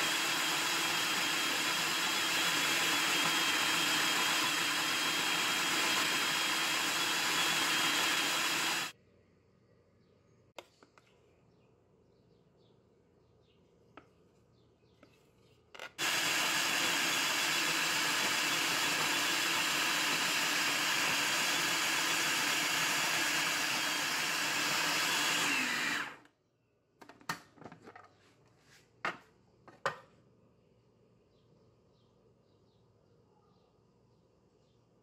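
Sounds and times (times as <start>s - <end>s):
food processor motor grinding: 0.0s - 8.9s, 15.8s - 26.3s.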